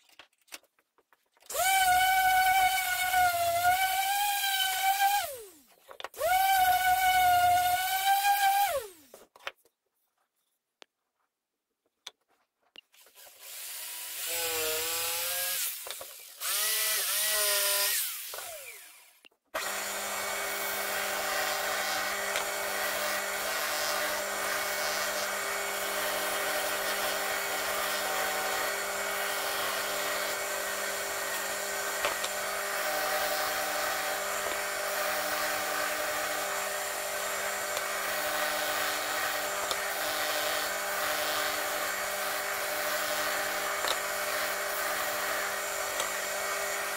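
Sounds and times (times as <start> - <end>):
spindle sander motor hum: 1.5 - 5.6, 6.2 - 9.0, 13.5 - 46.9
power tool whining: 1.5 - 9.2, 13.0 - 46.9
wood sanding hiss: 38.0 - 46.9.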